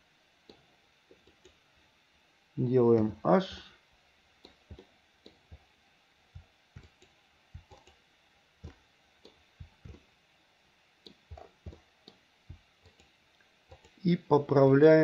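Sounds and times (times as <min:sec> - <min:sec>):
mouse and keyboard clicks: 0:00.5 - 0:01.6, 0:04.4 - 0:05.6, 0:06.8 - 0:08.0, 0:08.6 - 0:10.0, 0:12.8 - 0:13.1, 0:13.7 - 0:14.0.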